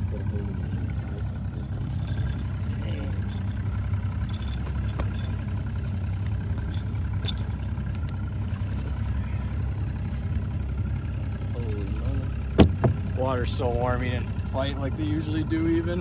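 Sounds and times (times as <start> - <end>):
outboard motor idling: 0.0 - 16.0.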